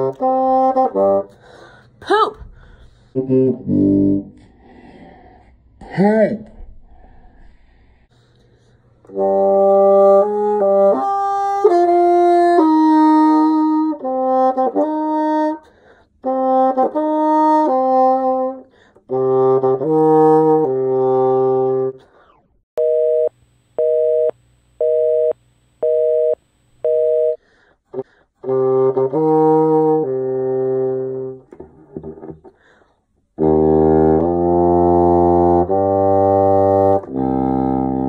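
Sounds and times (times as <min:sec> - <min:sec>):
bassoon playing: 0:00.0 - 0:01.6, 0:03.1 - 0:04.5, 0:09.0 - 0:22.0, 0:28.0 - 0:32.4, 0:33.4 - 0:38.0.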